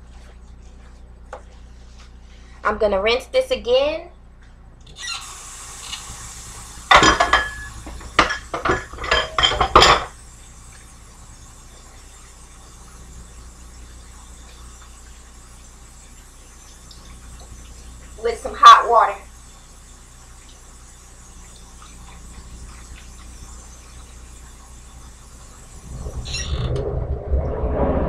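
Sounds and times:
knocking and clinking in sink: 6.9 - 10.1.

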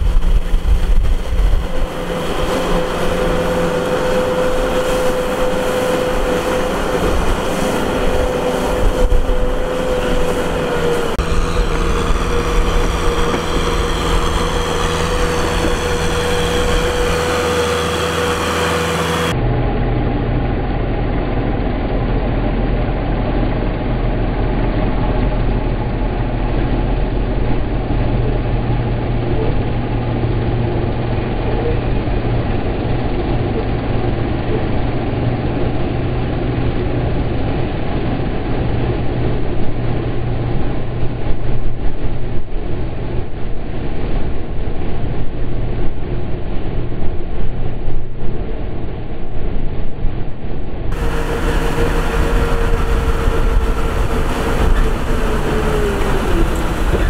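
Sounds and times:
tyres churning mud and water: 0.0 - 19.4, 50.9 - 57.0
tractor diesel engine running: 0.0 - 29.1, 50.9 - 57.0.

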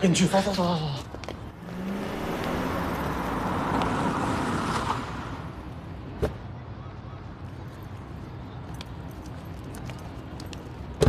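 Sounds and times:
car pulling up and stopping: 1.2 - 5.6.

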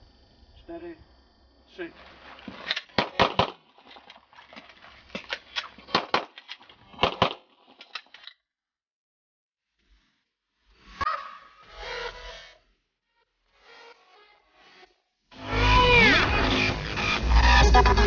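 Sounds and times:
handgun shots: 2.5 - 4.1, 5.1 - 8.0.

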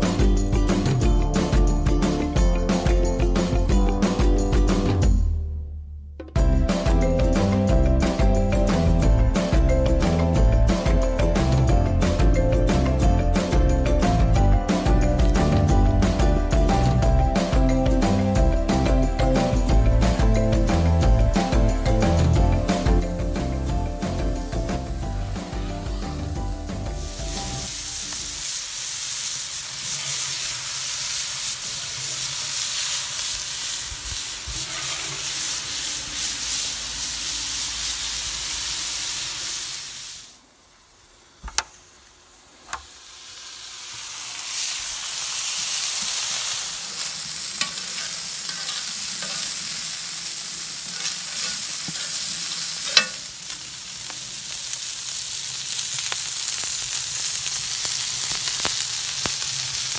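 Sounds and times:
meatballs sizzling on a griddle: 16.9 - 59.9.

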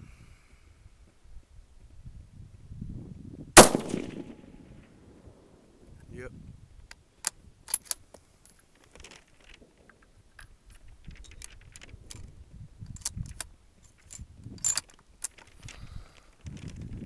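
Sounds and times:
rifle bolt metallic clicks and rattles: 7.2 - 12.3, 12.9 - 15.8.

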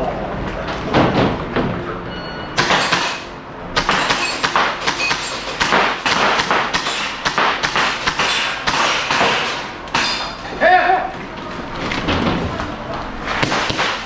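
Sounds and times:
airsoft rifle shots: 2.6 - 10.4, 13.4 - 14.0.

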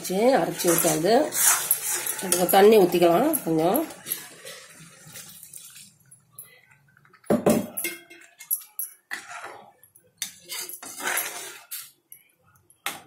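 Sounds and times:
ladle stirring and scraping pan: 0.0 - 6.2, 7.8 - 12.0.

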